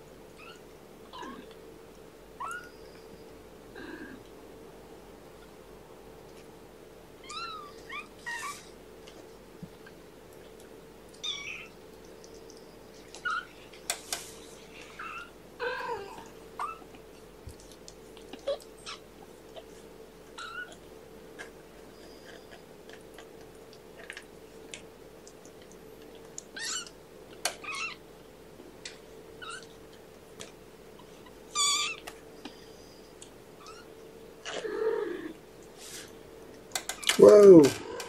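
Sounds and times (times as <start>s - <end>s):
faint steady hum: 0.0s - 38.0s
kittens mewing: 1.2s - 1.6s, 14.8s - 17.0s.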